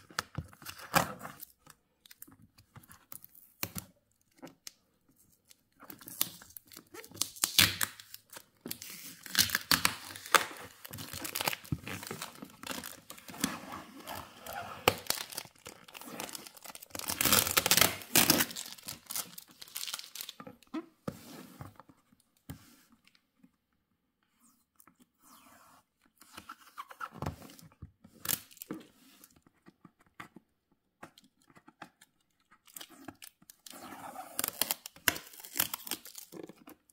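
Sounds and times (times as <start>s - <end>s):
adhesive tape peeled and torn: 6.0s - 8.2s, 14.8s - 20.3s, 32.7s - 36.4s.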